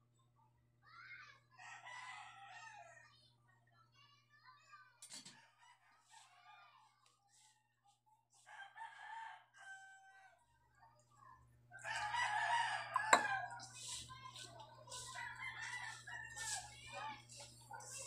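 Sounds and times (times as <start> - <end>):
rooster crowing: 1.6 - 3.0, 8.5 - 10.4, 11.8 - 13.6, 15.1 - 17.1.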